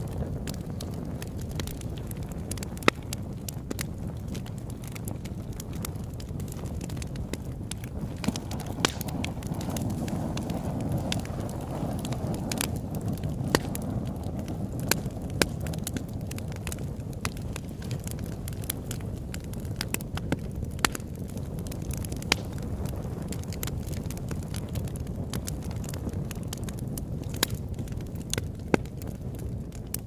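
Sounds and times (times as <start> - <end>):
low rush of flames: 0.0 - 30.0
wood crackling and popping: 0.0 - 30.0.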